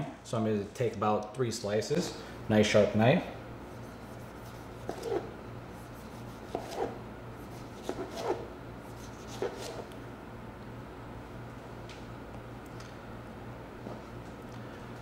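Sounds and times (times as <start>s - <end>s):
knife slicing tomato: 3.9s - 9.9s.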